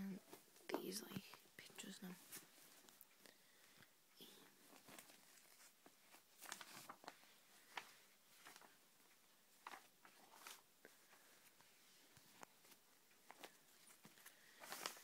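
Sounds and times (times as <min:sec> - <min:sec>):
magazine pages rustling: 0:04.5 - 0:15.0.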